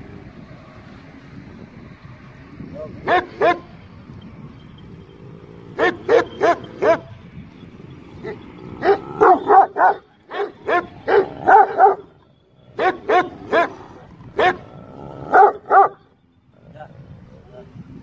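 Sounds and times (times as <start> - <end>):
dogs barking: 3.0 - 3.8, 5.6 - 7.2, 8.1 - 16.1.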